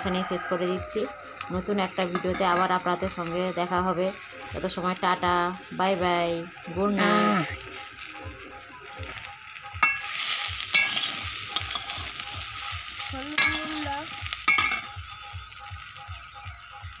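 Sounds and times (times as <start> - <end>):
food sizzling in a pan: 0.0 - 17.0
metal spatula scraping a pan: 2.0 - 3.0, 9.8 - 15.0.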